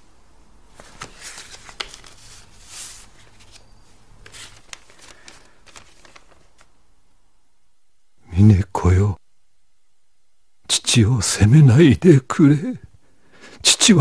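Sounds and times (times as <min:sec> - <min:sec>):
paper rustling and crackling: 0:00.7 - 0:06.8.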